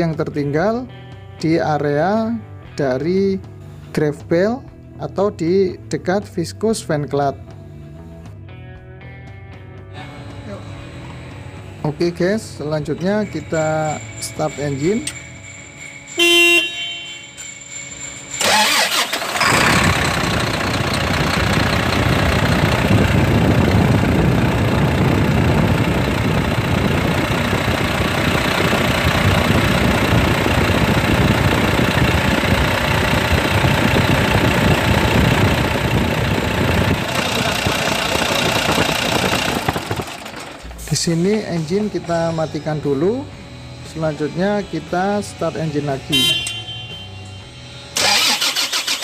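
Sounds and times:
diesel engine cranking and idling: 10.0 - 49.0
short pitched beep: 46.1 - 47.5.

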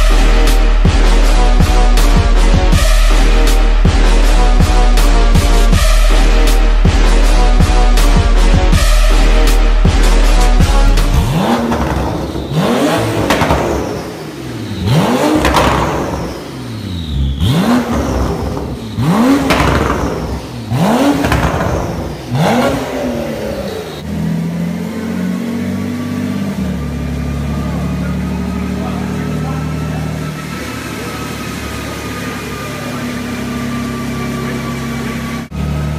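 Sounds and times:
car engine idling: 0.0 - 35.9
car engine revving: 0.0 - 35.9.

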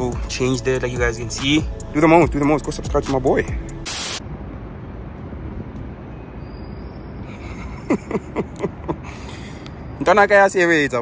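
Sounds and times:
steady low rumble: 0.0 - 6.1.

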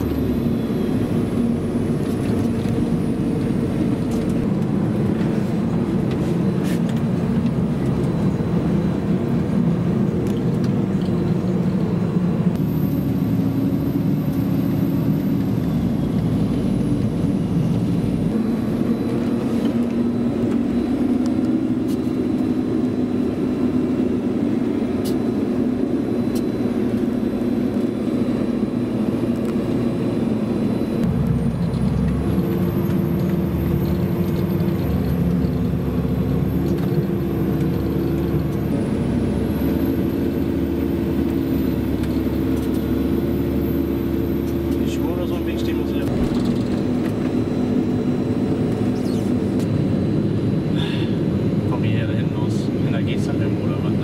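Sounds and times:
tractor diesel engine: 0.0 - 54.0.

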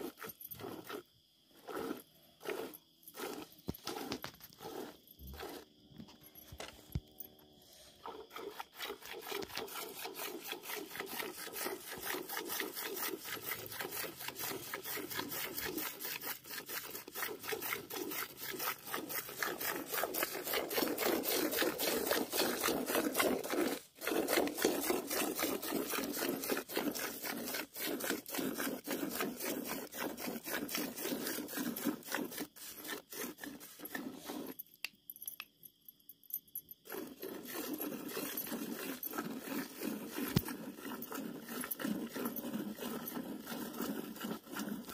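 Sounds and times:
milk squirting into a pail: 8.0 - 34.6, 36.9 - 44.9.

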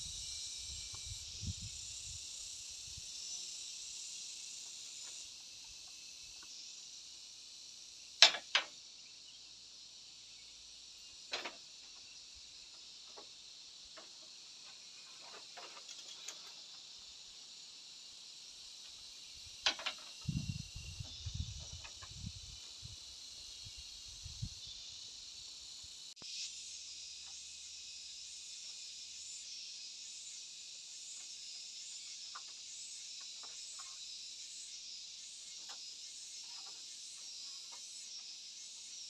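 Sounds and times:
insects chirring: 0.0 - 39.0
bamboo poles knocking: 8.2 - 8.8.

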